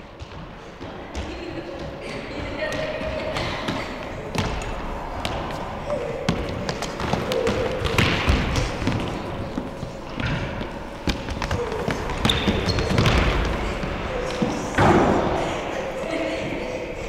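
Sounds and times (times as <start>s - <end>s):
ball bouncing off floor and wall: 6.3s - 15.3s.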